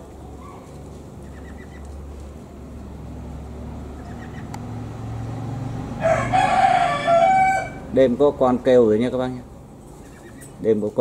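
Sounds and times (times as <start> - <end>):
ducks peeping: 0.3 - 2.4, 3.8 - 4.8, 9.8 - 10.6.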